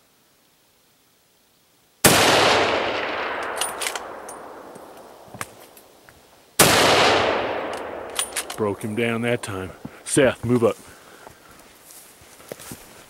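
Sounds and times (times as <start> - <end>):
rifle shots with echo: 2.0 - 5.8, 6.6 - 9.5
metallic clicks of rifle action: 3.0 - 5.9, 7.1 - 8.9.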